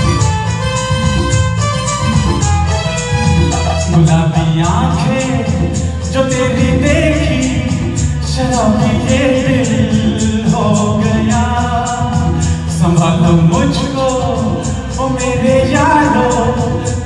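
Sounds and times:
instrumental accompaniment: 0.0 - 17.0
steady percussion beat: 0.0 - 17.0
man singing into a microphone: 3.3 - 17.0.

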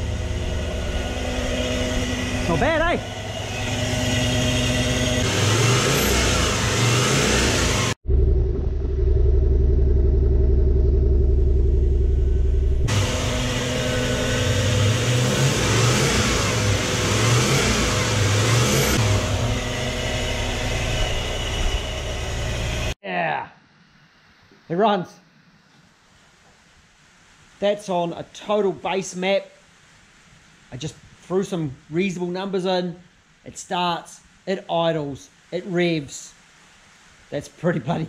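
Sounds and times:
deeper steady engine drone: 0.0 - 23.0
engine idling with throttle blips: 0.0 - 23.0.

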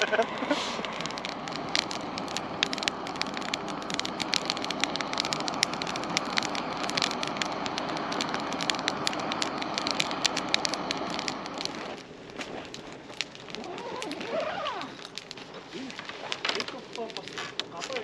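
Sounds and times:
fire rushing: 0.0 - 18.0
firewood crackling and popping: 0.0 - 18.0.

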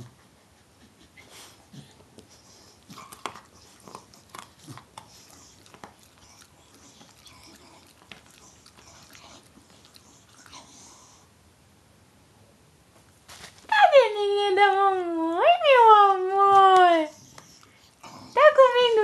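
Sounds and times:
dog gnawing chew stick: 1.8 - 11.2.

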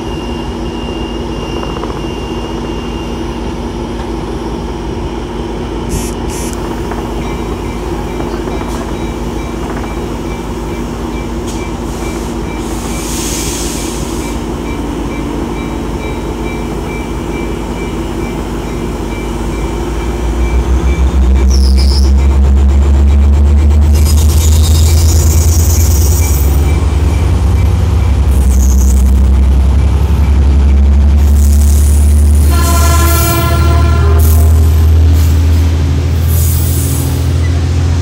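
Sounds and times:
diesel locomotive idling: 0.0 - 38.0
air hiss: 12.6 - 14.4.

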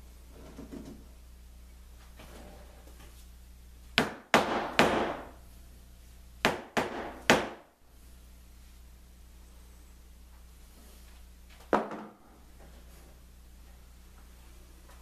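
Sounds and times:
rubber mallet striking wood: 4.0 - 5.3, 6.4 - 7.7.

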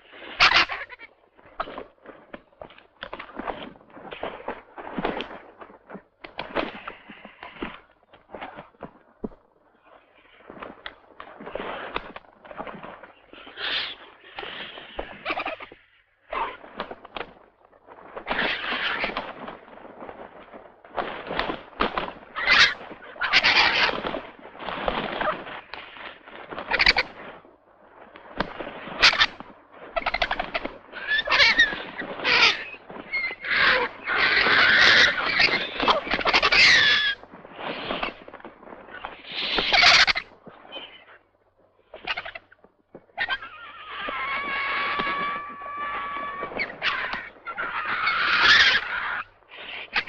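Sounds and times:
vultures hissing and rasping: 0.2 - 1.1, 13.3 - 15.8, 22.4 - 24.2, 26.7 - 27.0, 29.0 - 29.3, 30.0 - 38.2, 38.9 - 41.2, 43.2 - 50.0
vultures squealing: 0.2 - 1.8, 13.4 - 16.7, 18.3 - 19.3, 22.2 - 24.3, 26.5 - 27.2, 28.8 - 38.3, 38.9 - 41.2, 41.9 - 50.0.

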